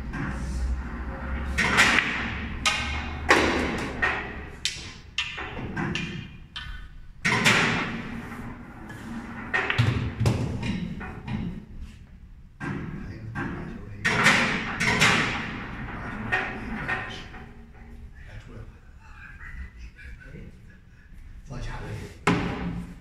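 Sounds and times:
pool balls clacking: 0.0s - 11.9s, 12.6s - 17.9s, 22.2s - 23.0s.

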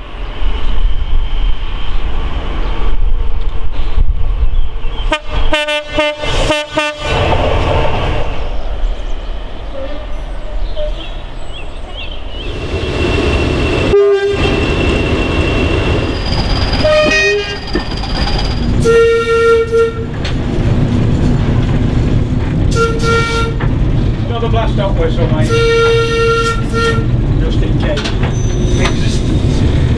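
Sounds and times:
locomotive running past: 5.0s - 29.9s
diesel locomotive horn: 5.1s - 7.2s, 9.7s - 10.2s, 13.6s - 15.9s, 16.8s - 17.6s, 18.8s - 20.2s, 22.7s - 23.7s, 25.4s - 27.2s.

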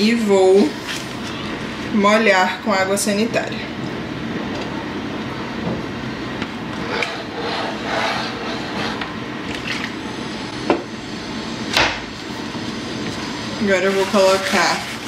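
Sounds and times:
washing machine running: 3.8s - 15.0s.

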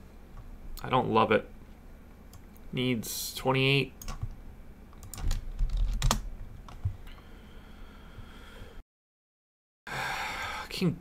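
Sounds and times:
computer keyboard typing: 4.0s - 4.3s, 5.0s - 6.9s.

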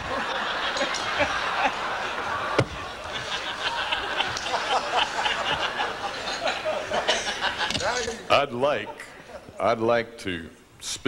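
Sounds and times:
audience laughing: 0.0s - 8.2s.

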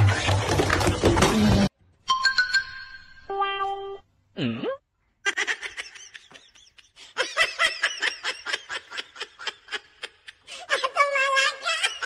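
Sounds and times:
person giggling: 4.4s - 10.5s.

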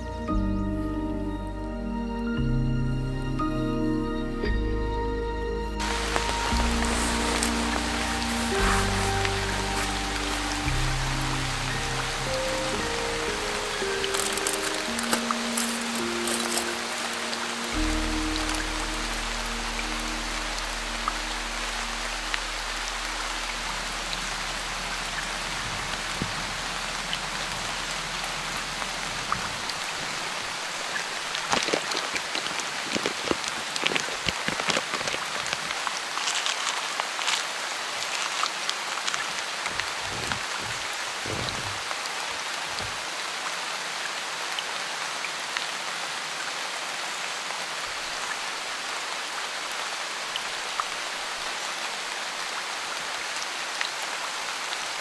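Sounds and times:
rain falling on a tent: 5.8s - 55.0s
dull thuds: 39.7s - 41.9s.

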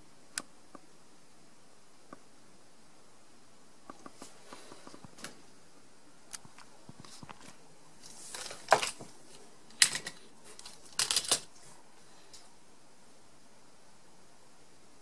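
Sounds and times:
handling rustle: 7.0s - 11.8s.

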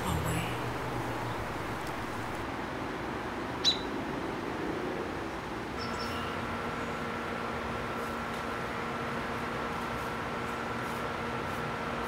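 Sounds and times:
low hum: 0.0s - 2.4s
robin alarm call: 0.0s - 2.4s.

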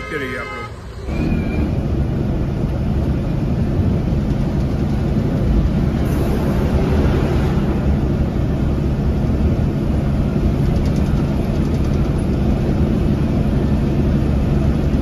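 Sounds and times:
bus diesel engine drone: 0.0s - 15.0s.

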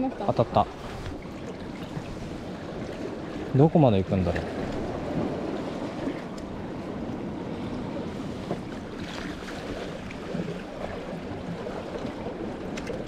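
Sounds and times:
small waves lapping on rocks: 0.0s - 13.0s.

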